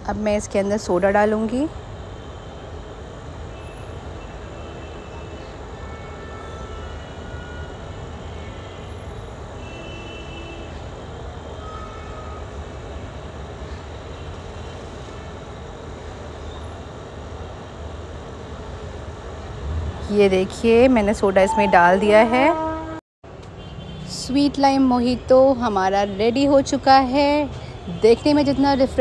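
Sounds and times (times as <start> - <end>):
low rumbling noise: 19.1 - 23.0.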